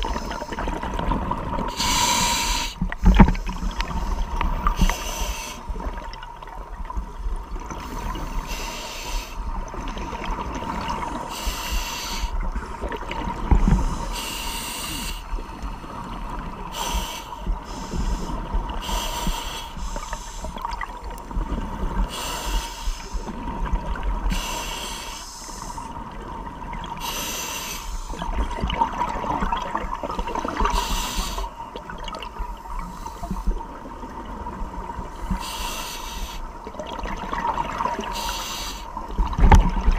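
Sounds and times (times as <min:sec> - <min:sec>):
underwater bubbling: 0:00.0 - 0:39.9
regulator breath hiss: 0:01.7 - 0:05.7, 0:08.0 - 0:09.4, 0:11.2 - 0:12.4, 0:13.8 - 0:15.4, 0:16.7 - 0:20.6, 0:22.1 - 0:23.3, 0:24.3 - 0:25.9, 0:27.0 - 0:28.2, 0:30.7 - 0:31.6, 0:35.2 - 0:36.5, 0:38.1 - 0:38.9.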